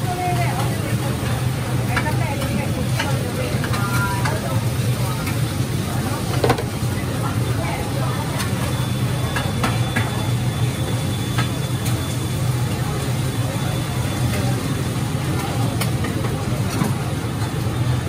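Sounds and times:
low drone of cooking equipment: 0.0s - 18.0s.

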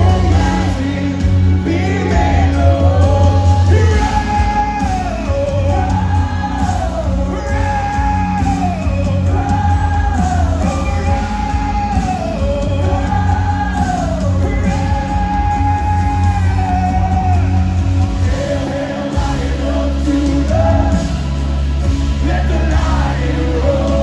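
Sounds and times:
heavy bass: 0.0s - 24.0s
live worship band playing: 0.0s - 24.0s
singing: 0.0s - 24.0s.

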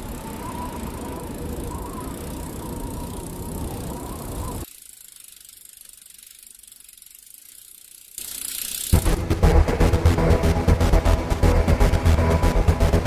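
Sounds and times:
faint wavering high tone: 0.0s - 4.7s
low outdoor ambient noise: 0.0s - 13.0s.

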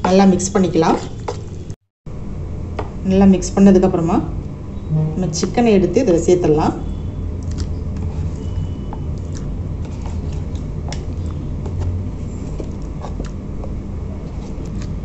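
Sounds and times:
wet squelches of chicken in marinade: 7.4s - 15.0s.

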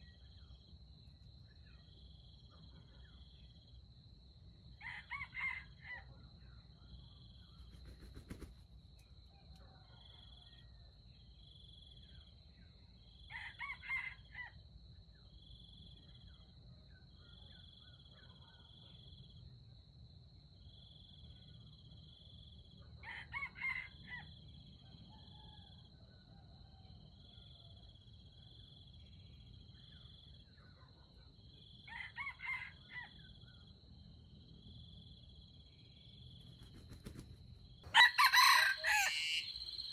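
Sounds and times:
insects buzzing and chirping: 0.0s - 9.3s, 31.4s - 39.9s
rooster crowing: 4.8s - 6.1s, 23.0s - 24.3s, 31.9s - 33.2s, 37.9s - 39.9s.

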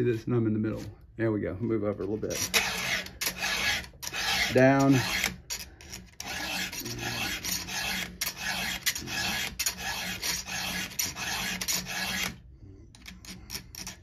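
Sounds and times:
file rasping on metal chain: 2.2s - 14.0s.

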